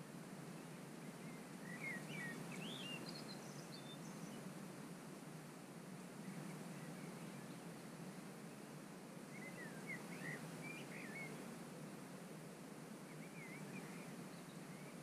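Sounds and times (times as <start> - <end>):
outdoor background hiss: 0.0 - 15.0
bird singing whistled notes: 1.2 - 4.4, 9.3 - 11.4, 13.1 - 15.0.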